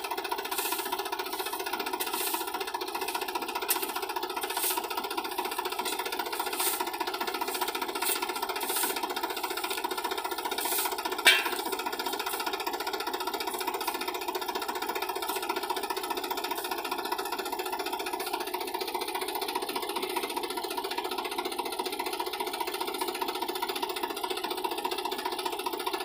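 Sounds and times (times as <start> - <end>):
tractor diesel engine running: 0.0 - 26.0
shovel scraping in sand: 0.1 - 12.6, 15.0 - 16.9.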